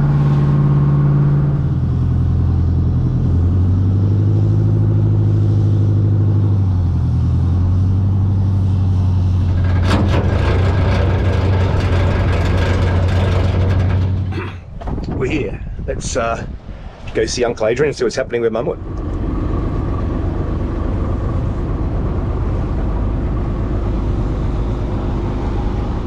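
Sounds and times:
engine running: 0:00.0 - 0:15.0, 0:18.2 - 0:26.0
rushing crackling noise: 0:08.6 - 0:16.4.

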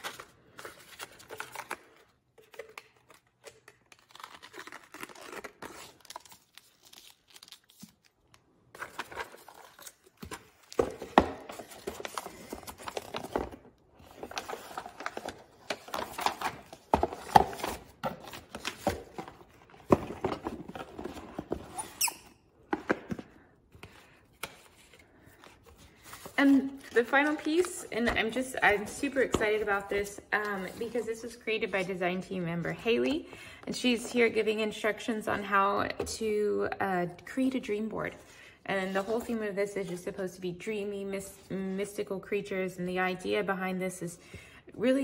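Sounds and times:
paper packaging rustling: 0:00.0 - 0:22.0, 0:22.6 - 0:32.0.

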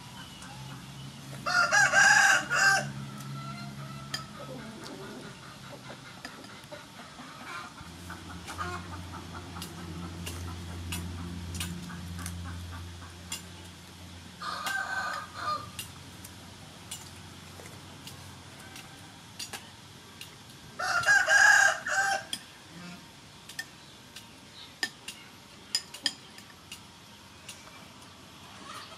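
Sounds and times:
rooster crowing: 0:01.4 - 0:04.5, 0:14.4 - 0:15.8, 0:20.8 - 0:22.3.

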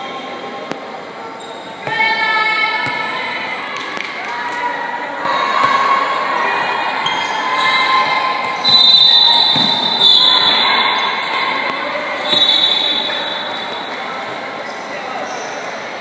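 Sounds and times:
spectators shouting and cheering: 0:01.9 - 0:14.5.

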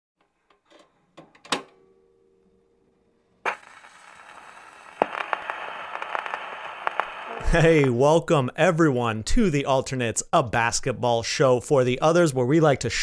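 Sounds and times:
steady hiss: 0:03.4 - 0:08.0
crackling clicks: 0:03.5 - 0:08.0.

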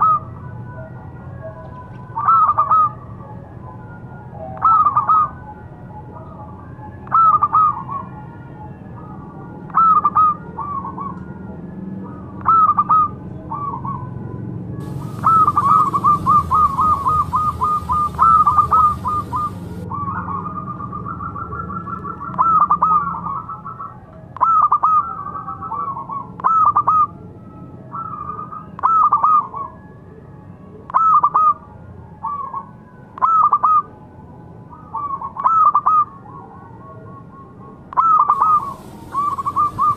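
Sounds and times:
dove cooing: 0:04.6 - 0:05.4, 0:14.8 - 0:23.8, 0:38.0 - 0:39.9
faint hiss: 0:14.8 - 0:19.8, 0:38.4 - 0:39.9.

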